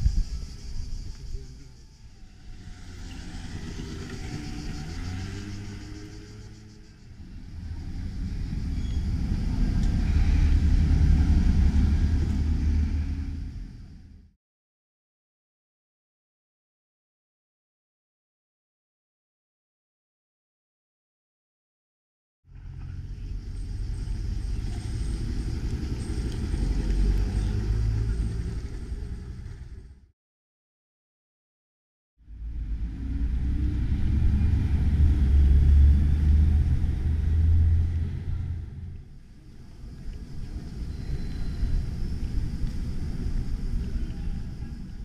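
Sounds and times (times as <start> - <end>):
passing vehicle rumble: 0.0 - 14.4, 22.5 - 30.1, 32.2 - 45.0
motor scooter engine passing: 2.1 - 13.5.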